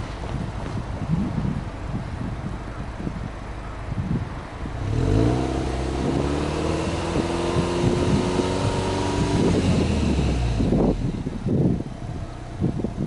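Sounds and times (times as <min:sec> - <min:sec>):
car engine revving: 0:04.6 - 0:12.7.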